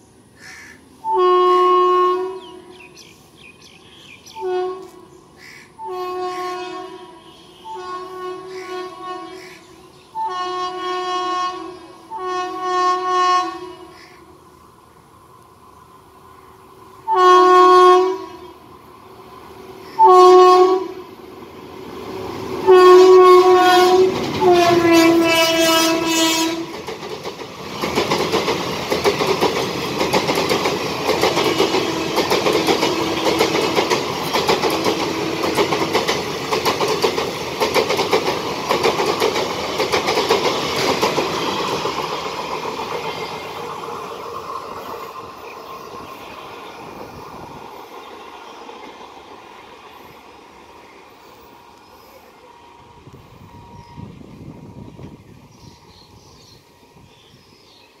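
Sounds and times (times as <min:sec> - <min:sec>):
locomotive horn blasts: 0:01.0 - 0:02.7, 0:04.3 - 0:05.1, 0:05.8 - 0:14.0, 0:17.0 - 0:18.6, 0:19.9 - 0:21.1, 0:22.6 - 0:26.8, 0:31.4 - 0:33.8, 0:34.6 - 0:35.8
train wheels clacking on rails: 0:22.1 - 0:50.3.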